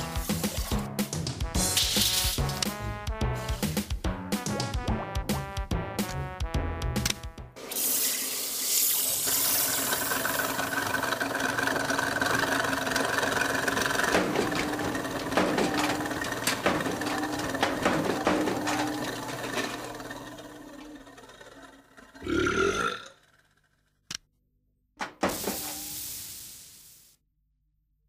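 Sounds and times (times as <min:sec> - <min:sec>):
washing machine whirring hum: 0:07.6 - 0:22.2
water filling washing machine: 0:07.6 - 0:22.2
knocks and clunks: 0:13.7 - 0:21.2, 0:25.0 - 0:25.6.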